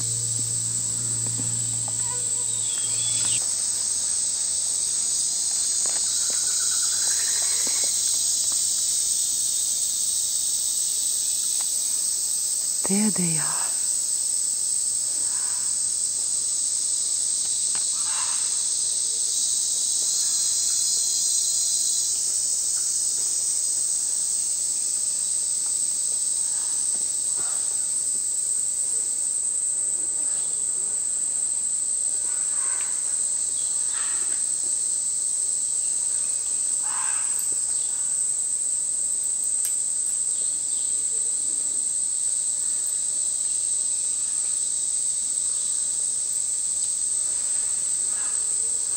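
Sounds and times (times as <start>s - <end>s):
high-pitched insect chorus: 0.0s - 48.9s
short faint calls: 2.0s - 3.4s.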